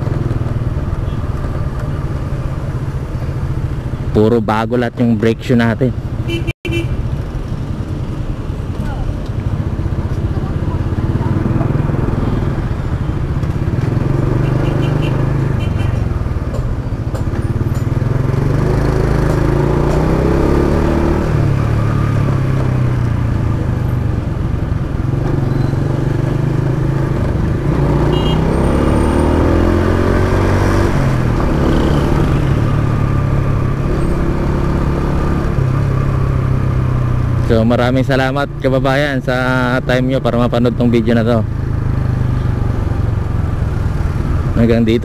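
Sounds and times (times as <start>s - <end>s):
road and wind noise: 0.0s - 45.0s
motorcycle engine running: 6.0s - 20.7s.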